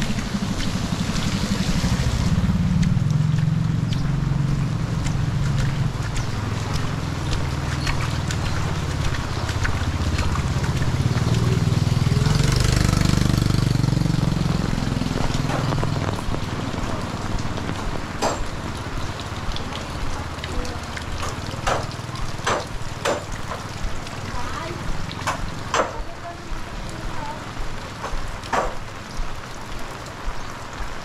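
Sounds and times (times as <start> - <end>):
vehicle engine passing: 0.0 - 30.8
heavy rain falling: 0.0 - 31.0
sharp taps: 13.0 - 30.4.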